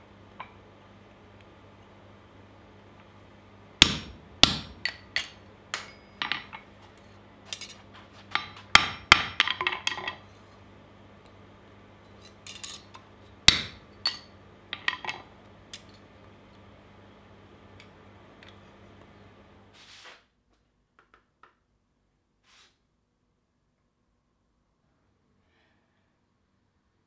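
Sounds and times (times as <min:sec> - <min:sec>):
hammer hitting metal punch: 0:03.8 - 0:06.6, 0:08.3 - 0:10.0, 0:13.5 - 0:15.0.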